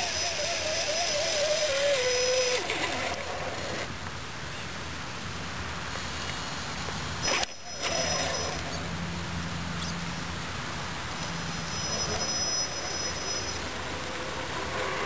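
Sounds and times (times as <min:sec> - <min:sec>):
toy truck motor whining: 0:00.0 - 0:03.9, 0:07.2 - 0:08.9, 0:11.2 - 0:15.0
steady background hiss: 0:00.0 - 0:15.0.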